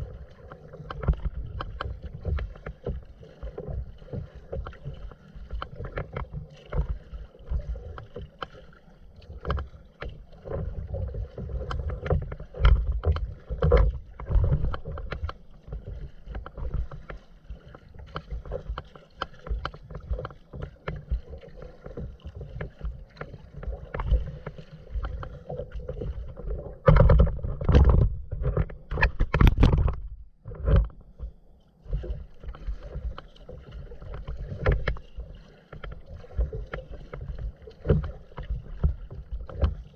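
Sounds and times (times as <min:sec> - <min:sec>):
water splashing against kayak hull: 0:00.0 - 0:39.9.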